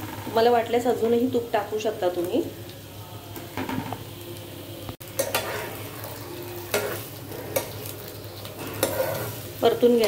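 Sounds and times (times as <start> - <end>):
sweet potato sizzling in a pan: 0.0 - 10.0
spatula scraping a pan: 5.1 - 9.6.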